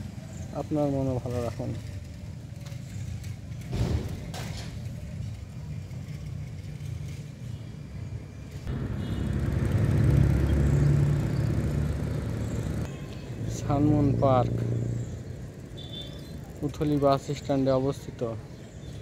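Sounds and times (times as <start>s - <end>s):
road traffic rumbling: 0.0s - 19.0s
vehicle passing: 8.6s - 15.7s.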